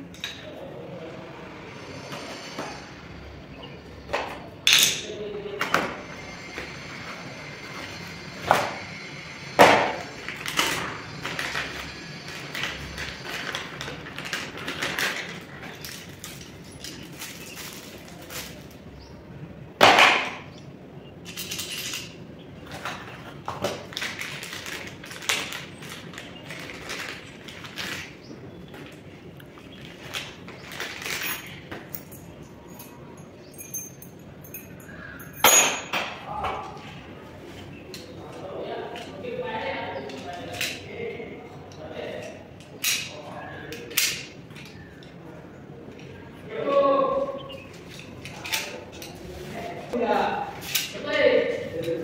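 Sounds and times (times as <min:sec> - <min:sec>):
plastic bags rustling and tearing: 0:10.0 - 0:19.0, 0:23.0 - 0:31.7
metal parts clinking: 0:21.2 - 0:22.2, 0:30.1 - 0:36.0.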